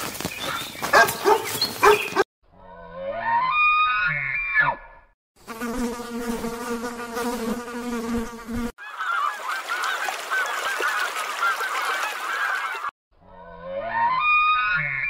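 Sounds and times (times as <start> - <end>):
flying insect buzzing: 5.4 - 8.8
geese calling: 8.8 - 12.9.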